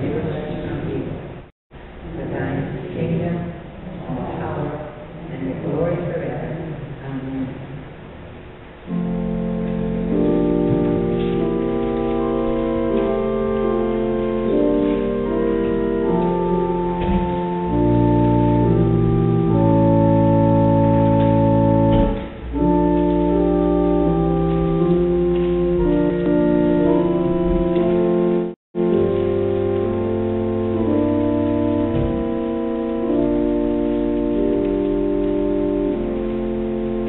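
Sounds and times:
organ playing slow chords: 8.9 - 37.0.

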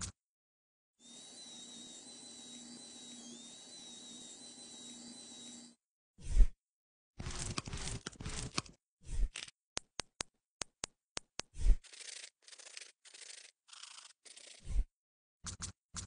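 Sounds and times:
nail file rasping: 7.2 - 8.7, 11.3 - 14.7.

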